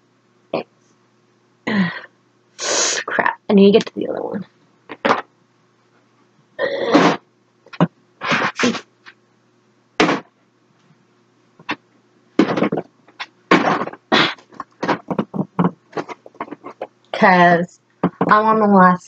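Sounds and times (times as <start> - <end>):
makeup palettes knocking and clattering: 12.4 - 16.9, 18.0 - 18.4.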